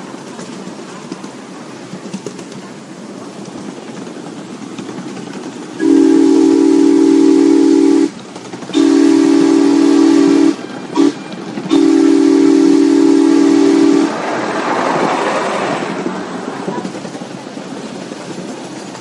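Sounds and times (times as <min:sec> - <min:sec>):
train running noise: 0:00.0 - 0:19.0
train chime whistle blasts: 0:05.8 - 0:08.1, 0:08.8 - 0:14.1.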